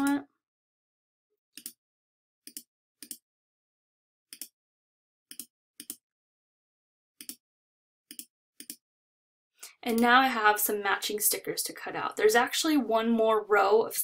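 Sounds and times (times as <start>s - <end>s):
computer mouse clicks: 1.6s - 1.8s, 2.5s - 3.2s, 4.3s - 4.5s, 5.3s - 6.0s, 7.2s - 7.4s, 8.1s - 8.8s.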